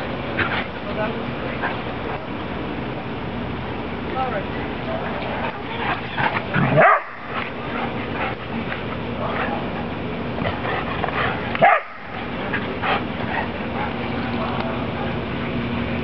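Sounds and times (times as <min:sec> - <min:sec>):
dogs barking: 0:05.8 - 0:08.6, 0:10.5 - 0:15.2.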